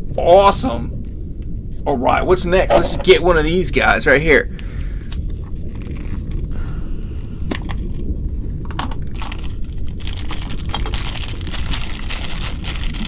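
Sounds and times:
plastic bag crinkling: 8.8s - 13.0s.

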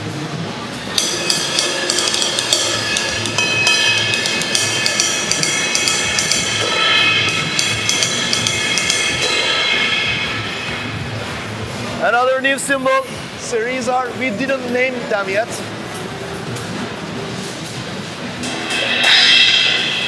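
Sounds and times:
cymbals struck with drumsticks: 0.9s - 11.8s, 18.4s - 20.0s.

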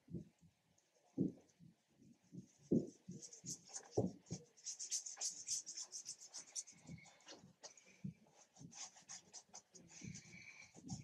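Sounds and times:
paintbrush rasping on canvas: 2.8s - 11.0s.

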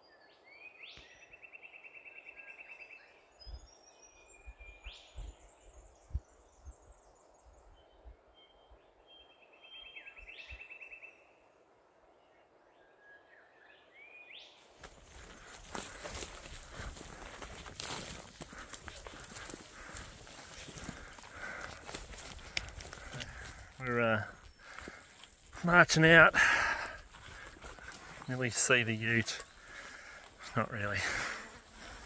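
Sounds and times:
footsteps crunching through dry grass: 14.6s - 32.0s
birds trilling: 14.8s - 32.0s.

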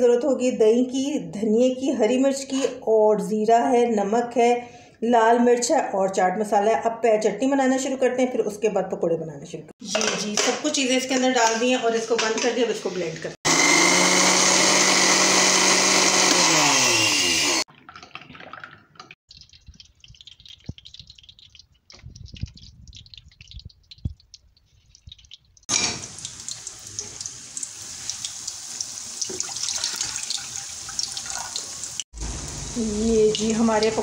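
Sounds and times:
electric blender grinding: 13.5s - 17.7s
water pouring into a pan: 17.7s - 34.0s
batter frying in hot oil: 19.3s - 34.0s.

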